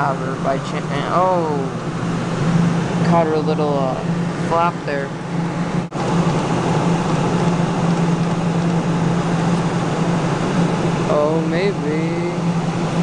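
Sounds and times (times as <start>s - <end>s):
arcade hum and hiss: 0.0s - 13.0s
constant low hum: 0.0s - 13.0s.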